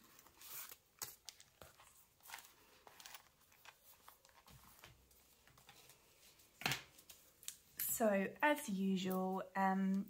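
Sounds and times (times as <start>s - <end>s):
banknotes rustling and crinkling: 0.0s - 7.8s.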